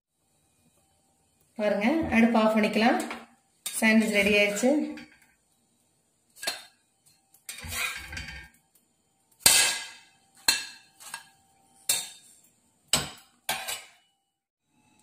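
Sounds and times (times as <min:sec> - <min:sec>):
spatula scraping iron griddle: 0:06.3 - 0:08.6, 0:09.4 - 0:14.1
spatula clinking on ceramic plate: 0:09.4 - 0:12.3, 0:12.9 - 0:14.1.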